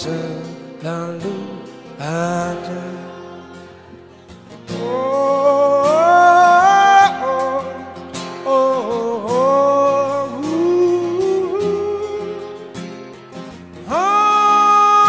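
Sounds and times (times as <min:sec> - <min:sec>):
acoustic guitar: 0:00.0 - 0:15.0
man singing long held notes: 0:04.7 - 0:12.8, 0:13.8 - 0:15.0.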